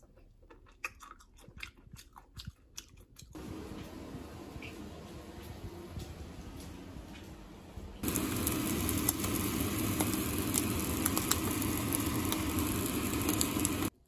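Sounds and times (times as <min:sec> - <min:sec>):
crab sticks sizzling in a frying pan: 0:08.0 - 0:14.0.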